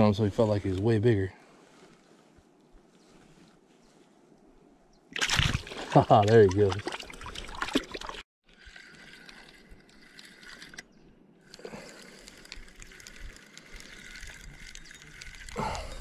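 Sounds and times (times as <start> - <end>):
shallow water splashing: 5.1 - 10.8
fishing reel whirring: 8.5 - 16.0.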